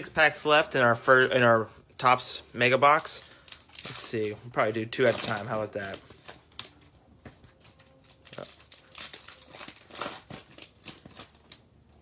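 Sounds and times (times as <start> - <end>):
plastic wrappers crinkling: 2.6 - 12.0.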